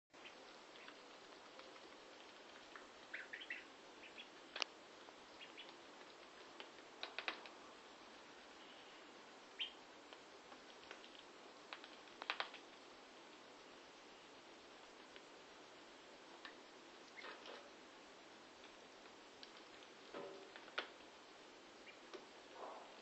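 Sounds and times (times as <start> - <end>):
ducklings peeping: 0.2 - 4.6, 5.3 - 6.4, 9.6 - 9.8, 16.4 - 17.4, 21.8 - 22.2
ducklings pecking food: 0.2 - 23.0.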